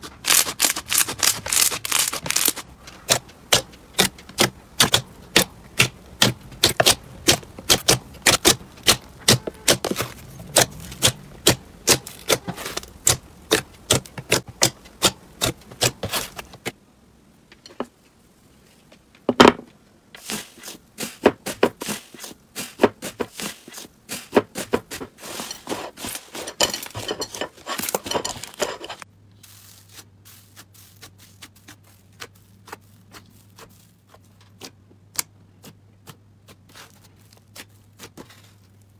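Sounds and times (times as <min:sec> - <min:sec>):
foil cracking: 0:00.0 - 0:16.7
foil crackling: 0:00.0 - 0:16.8, 0:20.2 - 0:34.8, 0:36.5 - 0:38.9.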